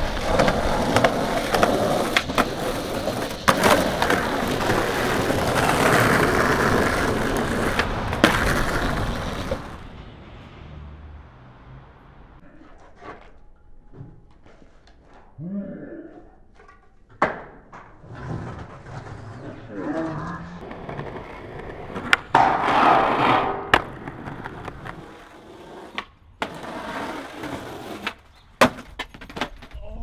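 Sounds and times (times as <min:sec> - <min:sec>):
skateboard scraping on steel beam: 0:00.0 - 0:10.0, 0:17.8 - 0:29.4
skateboard wheels rolling on concrete: 0:00.0 - 0:15.4, 0:16.5 - 0:30.0
skateboard popping and landing clacks: 0:00.1 - 0:09.8, 0:16.6 - 0:19.0, 0:20.6 - 0:26.8, 0:27.4 - 0:29.8.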